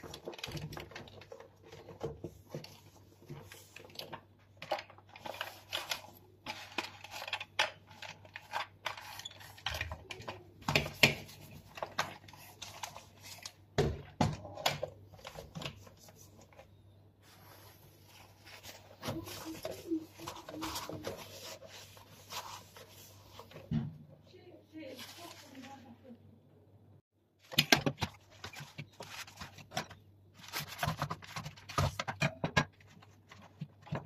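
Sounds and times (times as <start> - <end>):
cloth wiping plastic: 17.2 - 23.7, 24.8 - 26.0.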